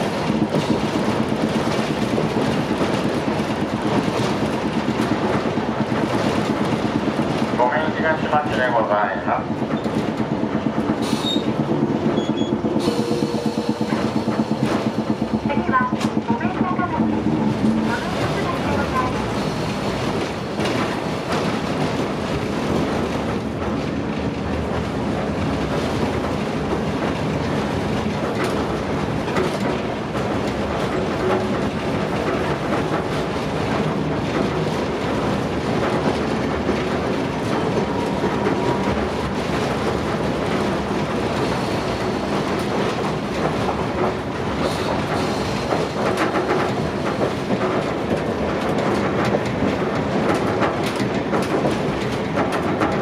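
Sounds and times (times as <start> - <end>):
tram wheels rumbling on rails: 0.0 - 53.0
clicks over rail joints: 19.6 - 53.0.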